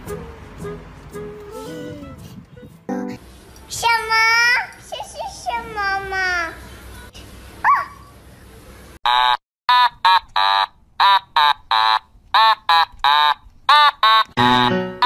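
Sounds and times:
puppy yapping: 7.6s - 8.1s.

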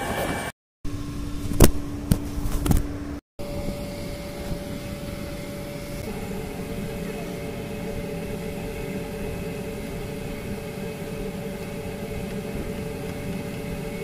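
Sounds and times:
higher hum: 0.0s - 14.0s
steady mechanical hum: 0.0s - 14.0s.

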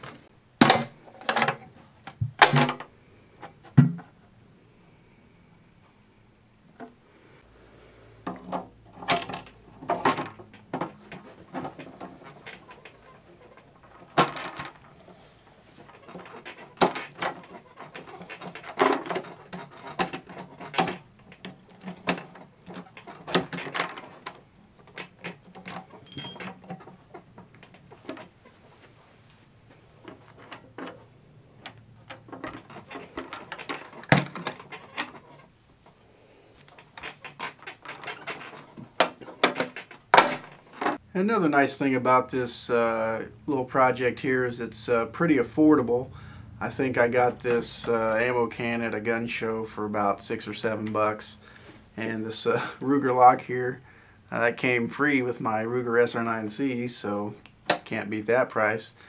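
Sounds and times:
metallic clicks and clanks: 0.0s - 4.2s, 8.2s - 28.8s, 30.0s - 36.0s, 36.6s - 41.0s.

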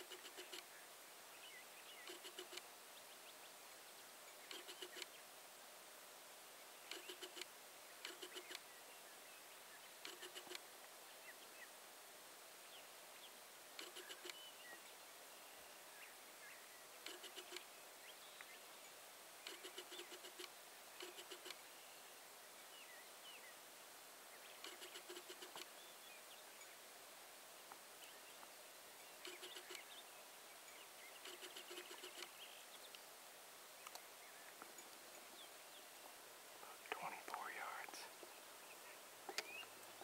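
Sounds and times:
faint high bird chirps: 13.8s - 23.6s, 28.0s - 33.0s, 36.9s - 39.8s
turkeys purring: 31.2s - 32.3s.

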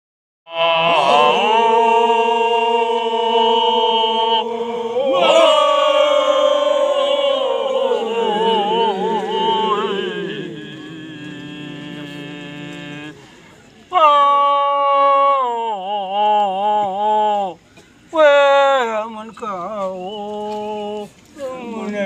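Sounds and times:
men chanting long held notes: 0.5s - 13.3s.

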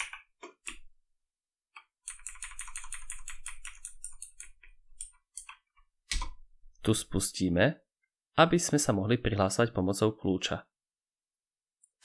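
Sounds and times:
computer keyboard keys clicking: 1.8s - 6.3s.

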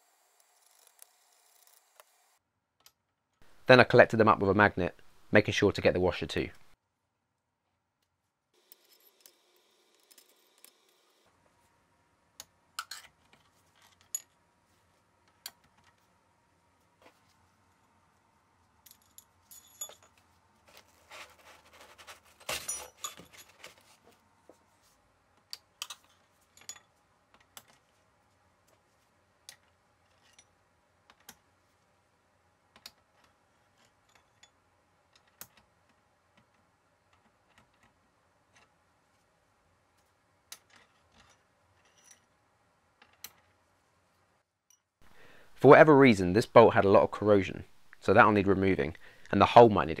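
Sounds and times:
metal bolts and washers clinking: 18.8s - 20.2s, 22.5s - 23.8s, 25.8s - 27.8s, 40.5s - 42.3s.

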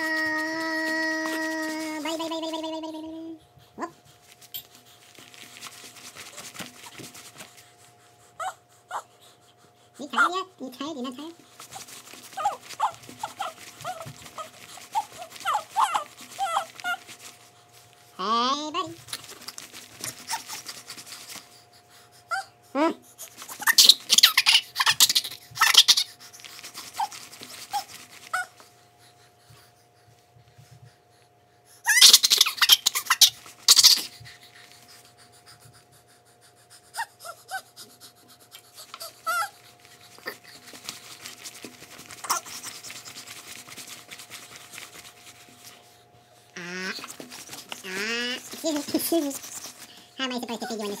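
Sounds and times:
baby squeaking: 12.4s - 17.0s, 23.5s - 26.2s, 27.7s - 28.5s, 31.8s - 34.1s, 39.0s - 39.6s, 42.2s - 42.7s, 46.6s - 47.2s, 47.8s - 49.7s.

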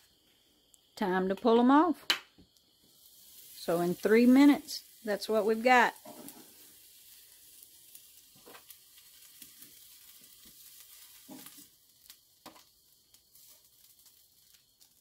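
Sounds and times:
fish sizzling faintly: 2.5s - 15.0s.

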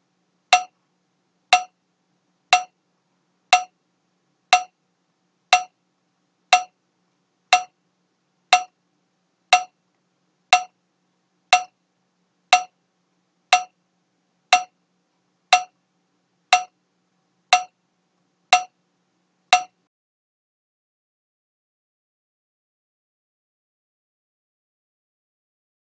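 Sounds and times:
metronome ticking: 0.5s - 0.8s, 1.5s - 1.8s, 2.5s - 2.8s, 3.5s - 3.8s, 4.5s - 4.8s, 5.5s - 5.8s, 6.5s - 6.8s, 7.5s - 7.8s, 8.5s - 8.8s, 9.5s - 9.8s, 10.5s - 10.8s, 11.5s - 11.8s, 12.5s - 12.8s, 13.5s - 13.8s, 14.5s - 14.8s, 15.5s - 15.8s, 16.5s - 16.8s, 17.5s - 17.8s, 18.5s - 18.8s, 19.5s - 19.9s.

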